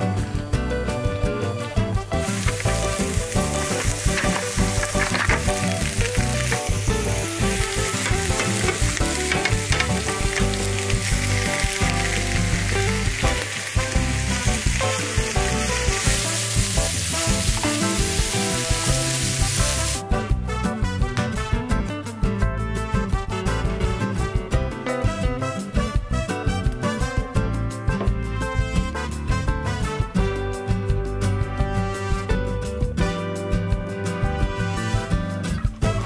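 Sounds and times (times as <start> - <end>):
vegetables sizzling in frying pan: 2.2 - 20.0.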